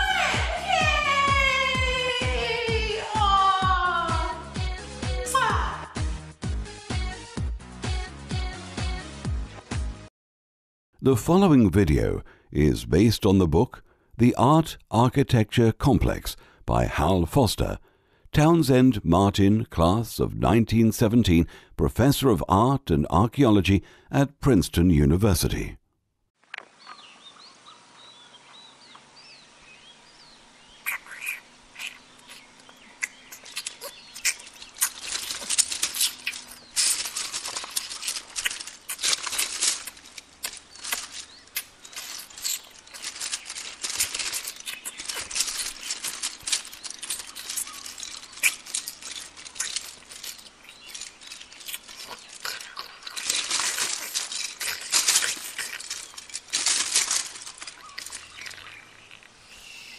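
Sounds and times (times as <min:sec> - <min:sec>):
faint bird chirps: 0:26.8 - 0:37.6, 0:40.6 - 0:54.8, 0:57.0 - 0:59.9
plastic bricks clattering: 0:33.5 - 0:59.3.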